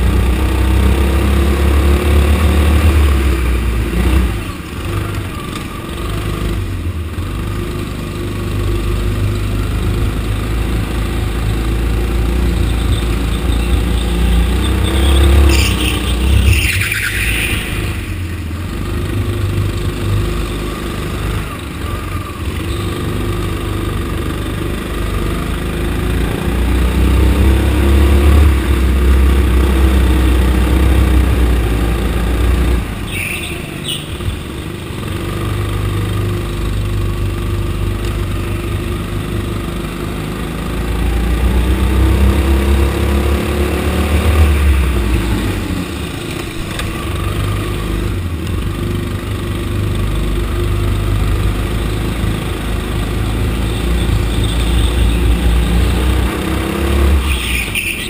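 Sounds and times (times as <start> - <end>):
go-kart engines racing: 0.0 - 58.0
brief high squeal: 14.9 - 18.3, 33.1 - 34.1.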